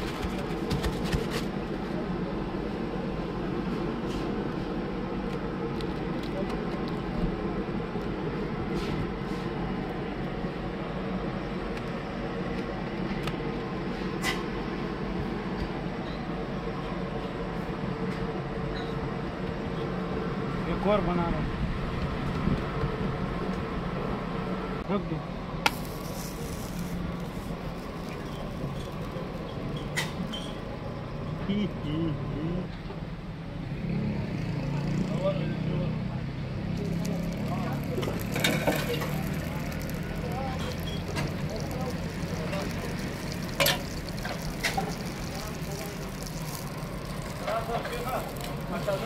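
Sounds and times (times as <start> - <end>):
short hiss: 25.7 - 27.6.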